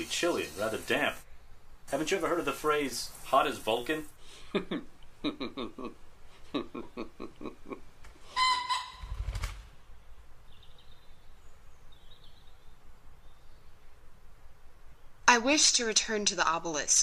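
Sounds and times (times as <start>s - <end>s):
laughter: 4.4s - 7.8s
pitched bird call: 8.3s - 9.4s.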